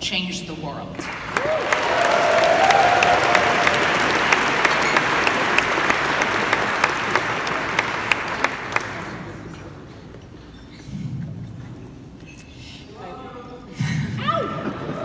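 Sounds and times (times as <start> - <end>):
hands clapping close by: 1.0 - 9.4
audience applauding: 1.0 - 9.6.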